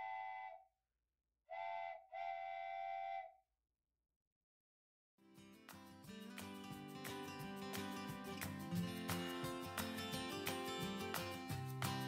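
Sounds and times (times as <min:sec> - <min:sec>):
steam locomotive whistle: 0:00.0 - 0:00.6, 0:01.5 - 0:03.4.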